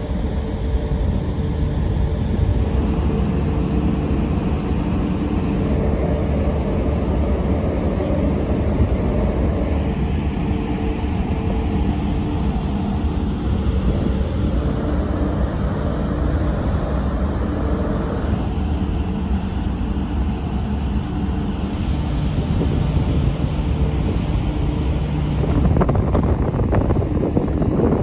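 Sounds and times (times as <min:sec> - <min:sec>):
faint hum: 0:00.0 - 0:28.0
ship engines rumbling: 0:00.0 - 0:28.0
wind on microphone: 0:00.0 - 0:28.0.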